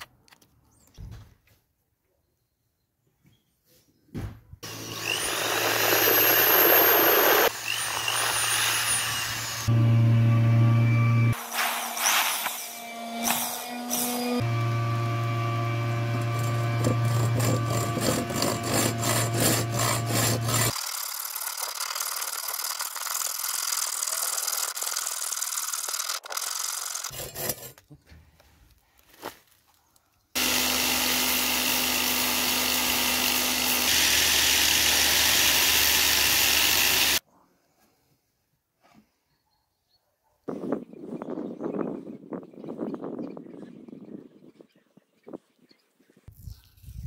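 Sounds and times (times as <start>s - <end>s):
cordless drill drilling into wood: 4.6s - 9.8s, 30.4s - 37.2s
hacksaw cutting wood: 4.6s - 9.8s, 11.4s - 27.8s, 30.4s - 37.2s.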